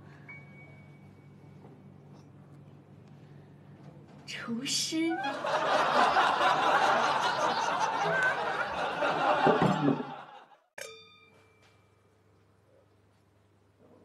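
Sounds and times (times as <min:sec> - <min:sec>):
canned audience laughter: 0:05.2 - 0:10.6
bright ding: 0:10.8 - 0:12.1.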